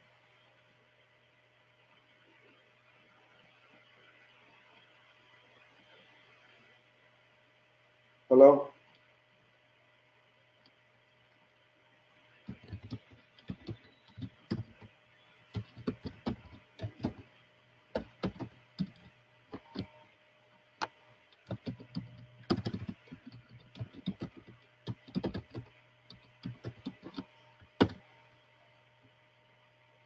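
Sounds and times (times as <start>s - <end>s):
low electrical hum: 0.0s - 30.0s
typing on a keyboard: 12.5s - 14.9s, 15.5s - 17.3s, 18.0s - 20.0s, 21.4s - 28.0s.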